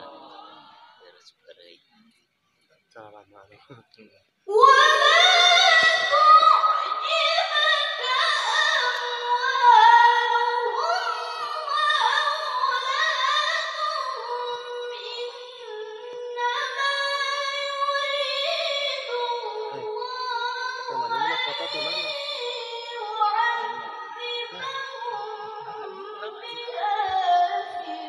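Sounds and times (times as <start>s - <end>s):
woman chanting into a microphone: 0.0s - 1.0s, 4.5s - 28.0s.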